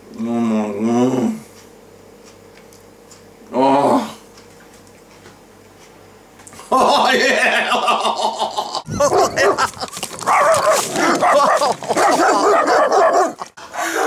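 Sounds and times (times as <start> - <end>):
dogs barking: 8.9 - 14.0.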